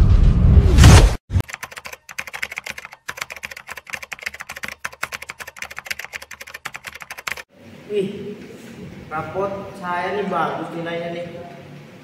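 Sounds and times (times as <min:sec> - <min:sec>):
keyboard typing clicks: 0:01.4 - 0:07.5.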